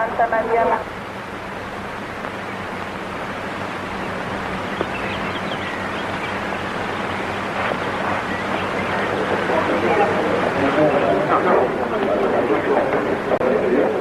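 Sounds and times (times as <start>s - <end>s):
film soundtrack hiss and hum: 0.0s - 14.0s
faint high chirps: 3.9s - 11.1s.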